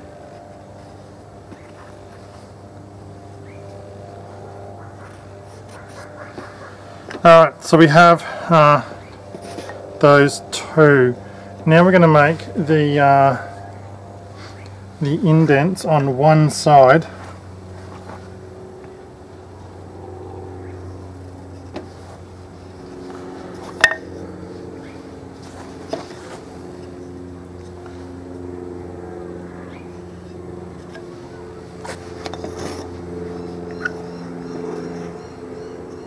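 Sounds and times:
low drone shifting pitch: 0.0s - 36.0s.

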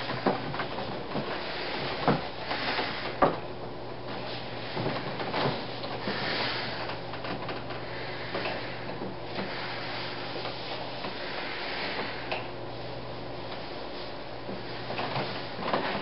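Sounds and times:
soft rustling: 4.0s - 16.0s.

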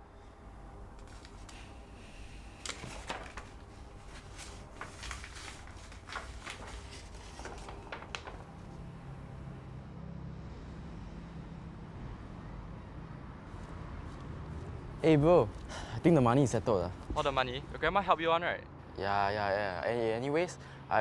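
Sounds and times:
low room hum: 0.0s - 18.0s
papers rustling: 1.0s - 9.0s.

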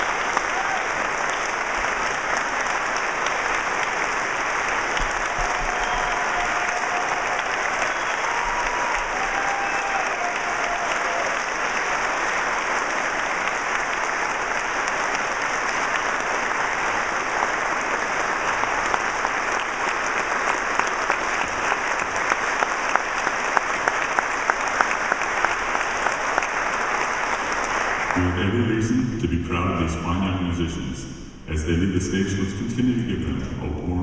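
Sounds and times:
loud single claps: 0.0s - 16.9s
audience applauding: 0.0s - 28.7s.

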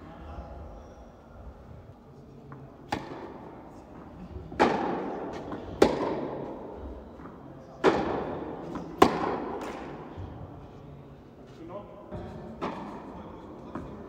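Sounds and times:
tennis ball bouncing on court: 2.9s - 3.4s, 4.6s - 6.4s, 7.2s - 9.9s
tennis ball hit by racket: 2.9s - 3.5s, 4.6s - 6.4s, 7.8s - 10.0s.

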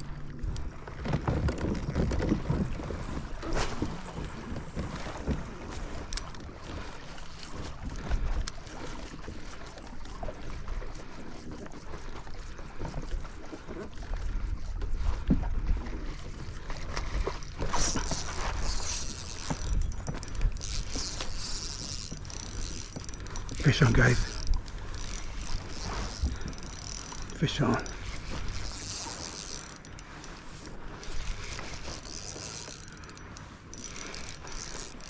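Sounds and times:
spinning reel whirring: 16.6s - 35.0s.

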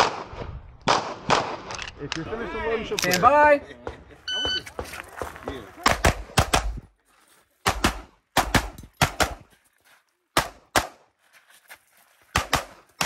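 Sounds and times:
pistol shots: 0.0s - 1.7s, 7.7s - 9.4s, 12.4s - 13.0s.

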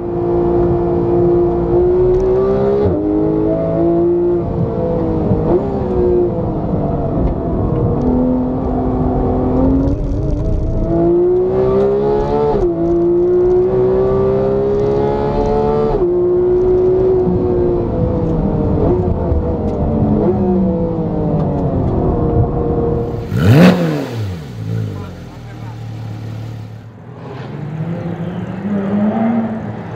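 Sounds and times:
car engine revving in cabin: 0.4s - 26.8s.

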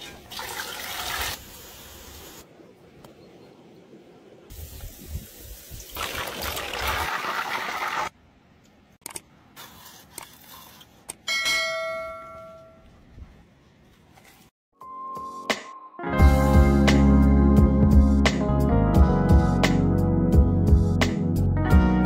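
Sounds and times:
bell-like metallic ring: 11.3s - 12.8s.

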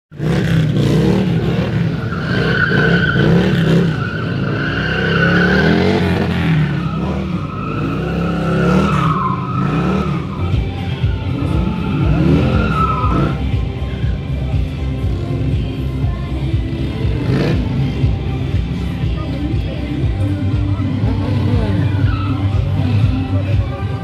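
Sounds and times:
motorcycle engine revving: 0.1s - 24.0s
tyre squealing on asphalt: 0.3s - 14.5s, 20.9s - 23.7s.

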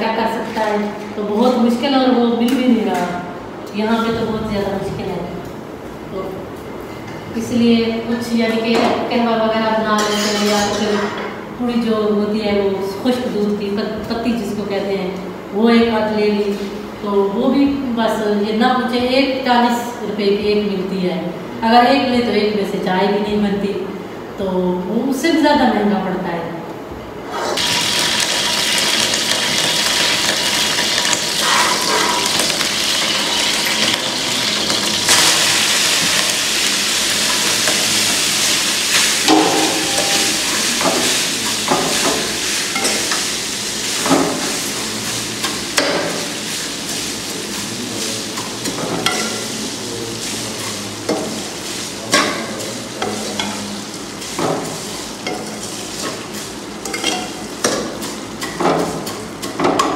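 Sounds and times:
vermicelli sizzling in a wok: 9.0s - 14.7s, 27.3s - 59.9s
metal spoon scraping a pan: 10.0s - 11.1s, 31.3s - 35.6s, 50.2s - 59.6s.

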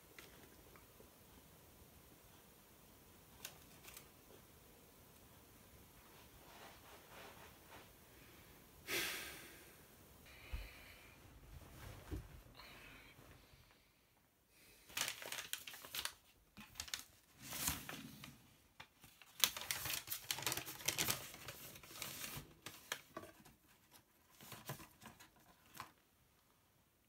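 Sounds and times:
paper rustling and crinkling: 3.3s - 4.1s, 14.8s - 26.0s.

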